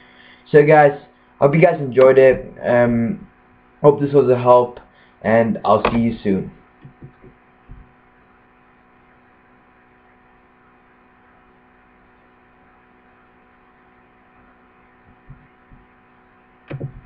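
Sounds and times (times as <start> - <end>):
electrical mains hum and hiss: 0.0 - 17.0.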